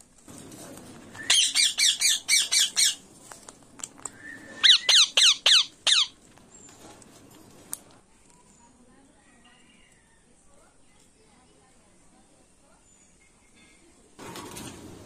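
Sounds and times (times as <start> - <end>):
parakeet squawking harsh calls: 1.3 - 3.0, 4.6 - 6.2.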